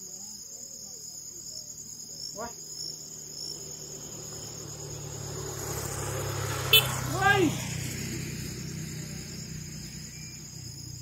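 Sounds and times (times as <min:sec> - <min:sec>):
insects chirring: 0:00.0 - 0:11.0
distant motorcycle hum: 0:02.4 - 0:11.0.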